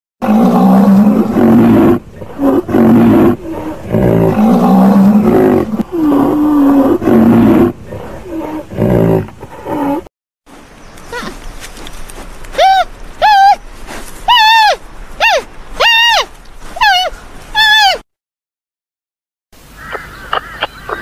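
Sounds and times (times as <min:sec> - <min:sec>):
large animal roaring: 0:00.2 - 0:10.1.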